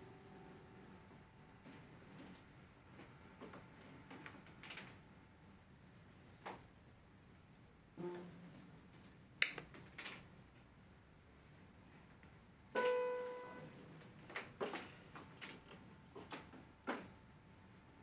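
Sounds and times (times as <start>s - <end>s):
piano note ringing: 12.8s - 13.7s.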